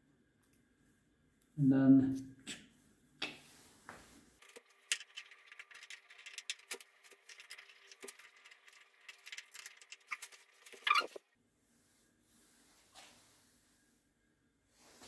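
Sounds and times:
small parts clicking and rattling: 0:04.4 - 0:11.2.

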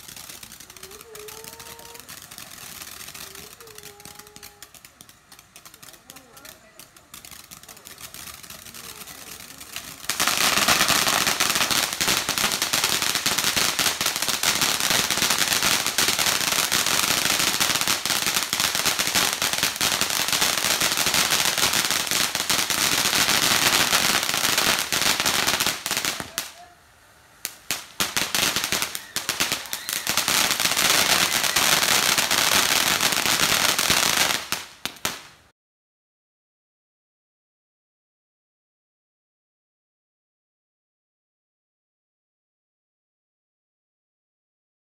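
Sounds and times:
firework crackling: 0:00.0 - 0:35.5.

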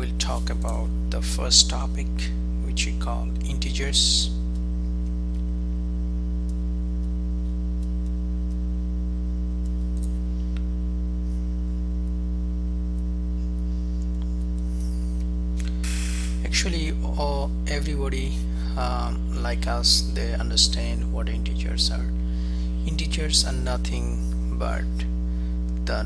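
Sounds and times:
electrical mains hum: 0:00.0 - 0:26.0
faint small clicks: 0:06.4 - 0:08.7, 0:09.5 - 0:10.7.

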